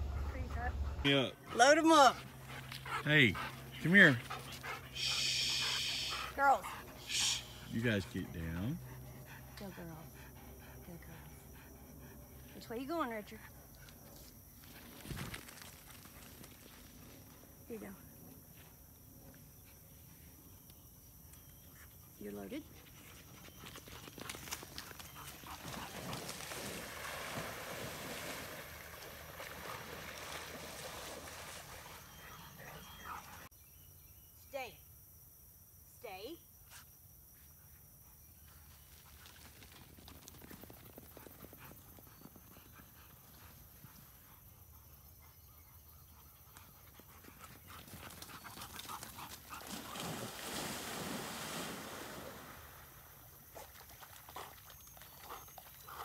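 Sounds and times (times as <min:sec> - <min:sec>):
dogs splashing in pond water: 0:00.0 - 0:07.8, 0:23.2 - 0:33.5, 0:46.4 - 0:56.0.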